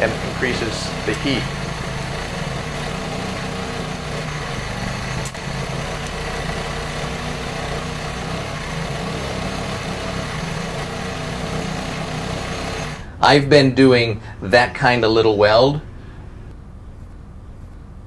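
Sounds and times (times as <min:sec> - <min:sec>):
welding arc hissing: 0:00.0 - 0:13.2
low hum: 0:00.0 - 0:13.3.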